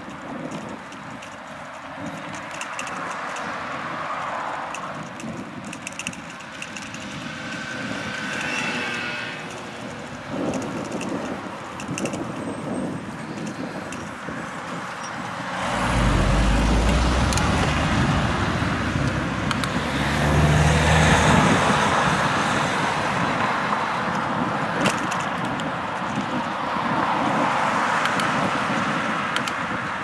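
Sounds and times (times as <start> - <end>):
vehicles passing: 0.0 - 30.0.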